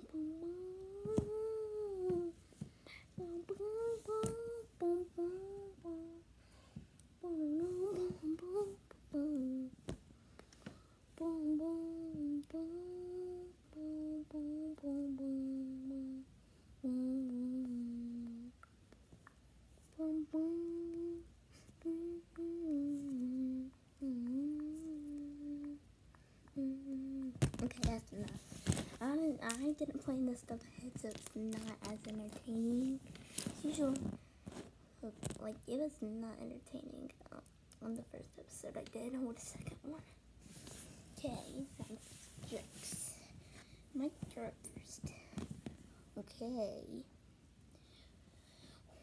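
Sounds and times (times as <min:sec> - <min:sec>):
child humming a tune: 0:00.0 - 0:02.4, 0:03.0 - 0:06.3, 0:07.2 - 0:09.9, 0:11.1 - 0:18.6, 0:19.9 - 0:25.9, 0:26.5 - 0:28.4, 0:29.0 - 0:34.2.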